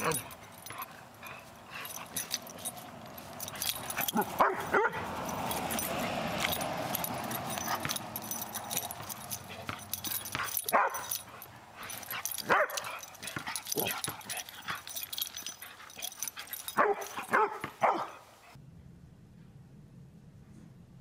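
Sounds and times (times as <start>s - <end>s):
noisy scuffle: 0.0s - 18.2s
puppy yipping and barking: 8.8s - 14.9s, 16.4s - 18.2s.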